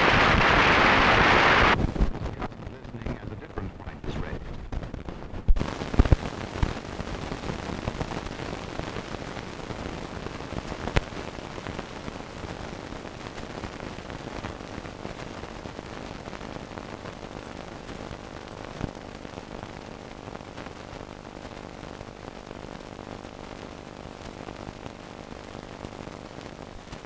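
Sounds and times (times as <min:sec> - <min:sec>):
film soundtrack hiss and crackle: 0:00.0 - 0:27.0.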